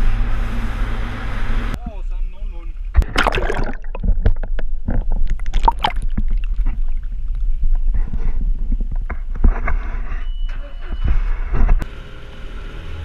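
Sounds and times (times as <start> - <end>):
steady low rumble: 1.7 - 11.8
water sloshing and splashing: 3.0 - 9.0.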